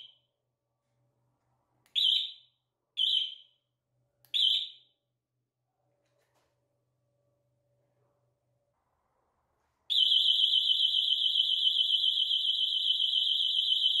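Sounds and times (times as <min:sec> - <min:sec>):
warbling electronic alarm siren: 0:09.9 - 0:14.0.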